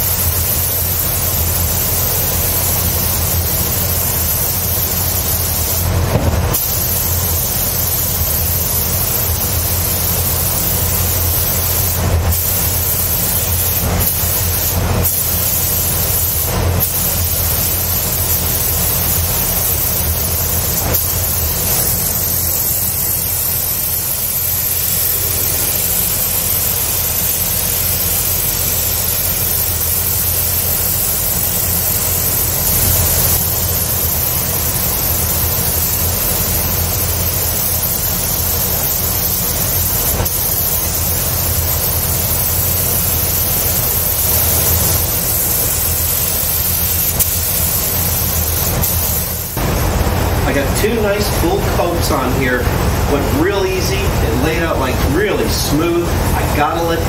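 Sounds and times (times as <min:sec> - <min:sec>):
spray gun air hiss: 0:00.0 - 0:57.0
ventilation low hum: 0:00.0 - 0:57.0.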